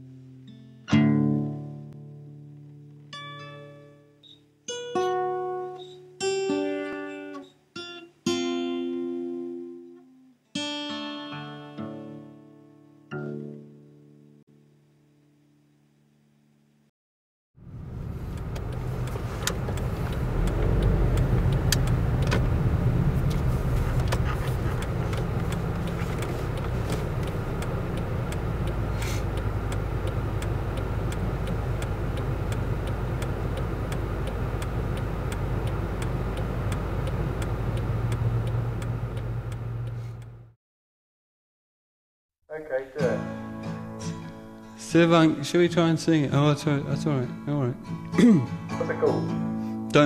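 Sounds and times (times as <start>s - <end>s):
car road and engine noise: 17.6s - 40.6s
light clicks and knocks: 18.3s - 39.6s.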